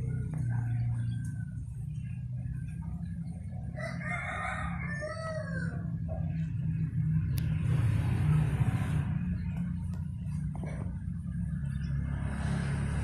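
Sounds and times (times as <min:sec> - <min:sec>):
steady low hum: 0:00.0 - 0:13.0
rooster crowing: 0:03.7 - 0:06.0.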